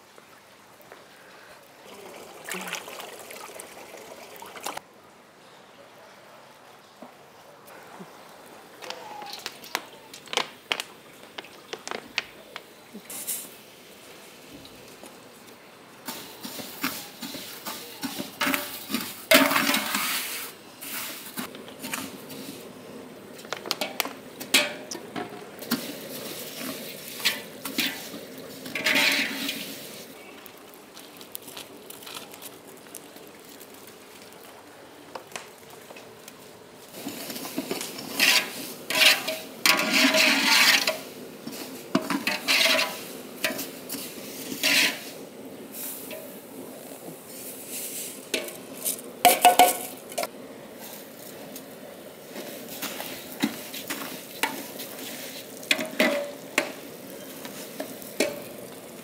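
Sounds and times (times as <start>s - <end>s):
utensils clinking and scraping on pots: 16.0s - 22.7s, 23.4s - 30.7s, 36.9s - 45.3s, 45.9s - 46.4s, 47.8s - 50.3s, 52.3s - 59.0s.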